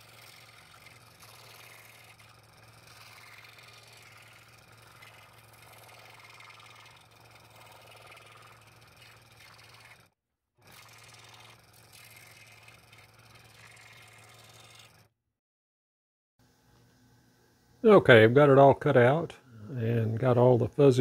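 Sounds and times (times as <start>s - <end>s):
scroll saw cutting wood: 0.0s - 15.1s.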